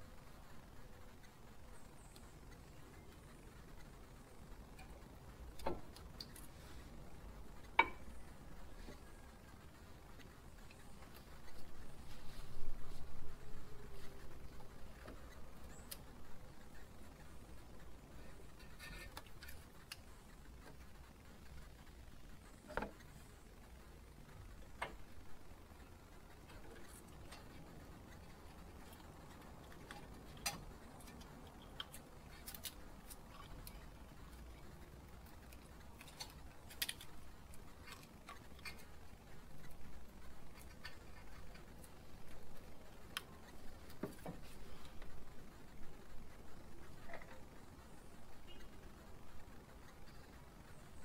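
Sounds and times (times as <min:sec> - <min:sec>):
low steady hum: 0:00.0 - 0:51.0
faint clicks and taps on metal: 0:24.7 - 0:45.2.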